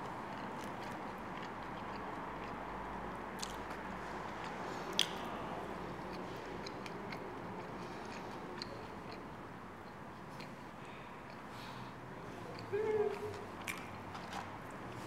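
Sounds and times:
person chewing food: 0.2s - 5.2s, 5.9s - 11.5s.

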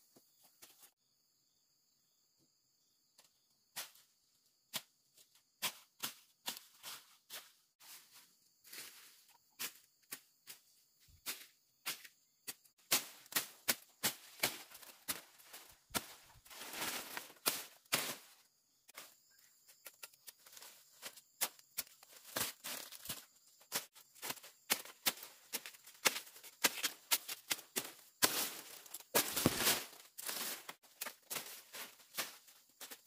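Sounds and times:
rustling: 12.8s - 18.4s, 19.9s - 33.0s.

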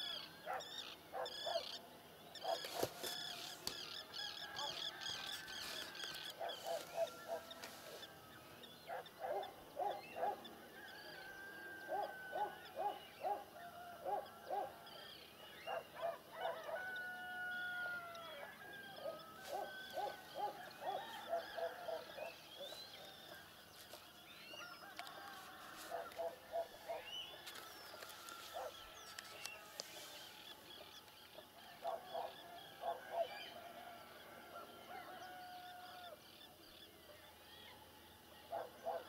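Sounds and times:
birds chirping and whistling: 19.0s - 24.7s.

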